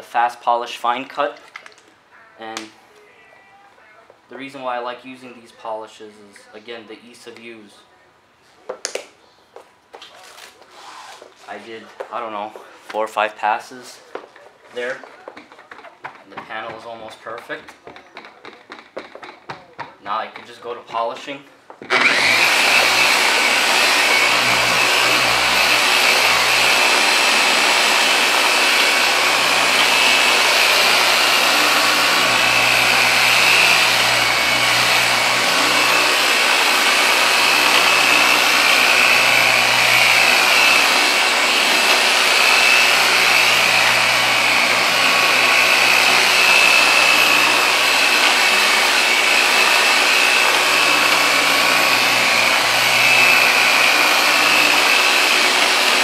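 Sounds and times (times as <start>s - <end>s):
polisher whirring and whining: 21.8s - 56.0s.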